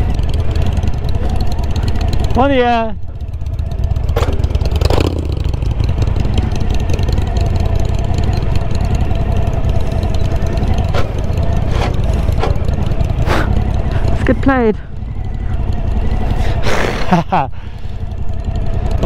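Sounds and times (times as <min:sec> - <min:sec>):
motorcycle engine running: 0:00.0 - 0:19.0
wind and road noise rumble: 0:00.0 - 0:19.0
sharp knocks over ruts: 0:04.0 - 0:06.1, 0:10.1 - 0:14.3.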